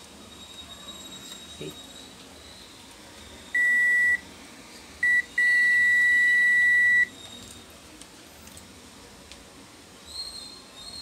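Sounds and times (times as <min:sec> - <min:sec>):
multimeter continuity beeping: 0:03.6 - 0:04.2, 0:05.0 - 0:07.1.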